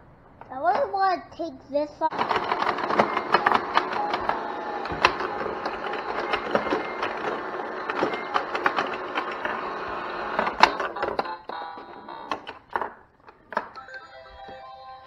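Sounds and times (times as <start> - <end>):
plastic pinball clicks: 2.1 - 13.8
electronic game tune: 13.7 - 15.0.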